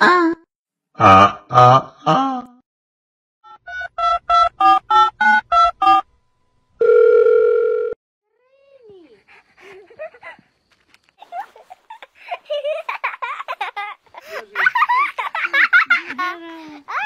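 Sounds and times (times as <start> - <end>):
steady telephone tone: 6.8 - 8.0.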